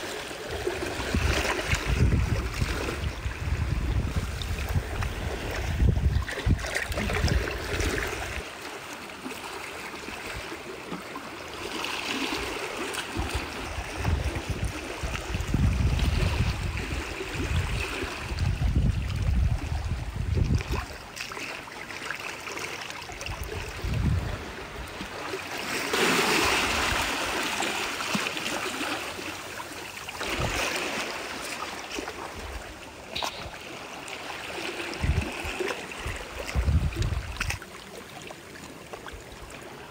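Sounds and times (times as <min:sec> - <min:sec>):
sea water washing among rocks: 0:00.0 - 0:39.9
wind buffeting microphone: 0:00.5 - 0:08.4, 0:13.2 - 0:21.0, 0:23.2 - 0:25.0, 0:34.8 - 0:37.6.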